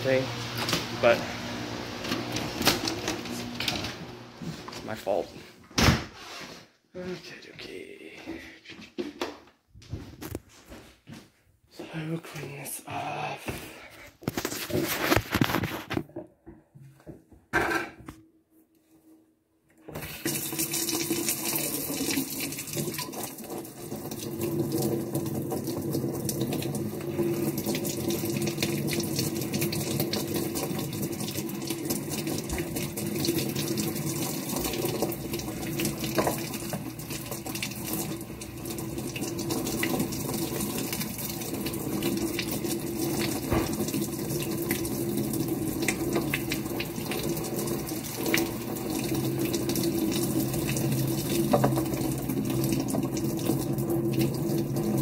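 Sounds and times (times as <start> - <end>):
faucet water splashing into sink: 19.9 - 55.0.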